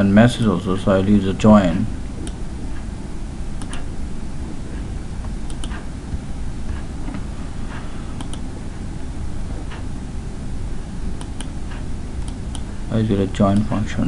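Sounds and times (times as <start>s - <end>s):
steady low hum: 0.0s - 14.0s
keyboard and mouse clicks: 3.6s - 3.9s, 5.5s - 5.9s, 8.2s - 8.4s, 11.2s - 12.7s.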